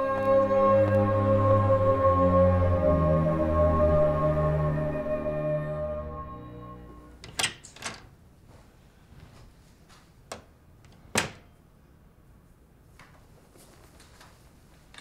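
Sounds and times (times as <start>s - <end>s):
door latch clicks: 7.2s - 8.1s.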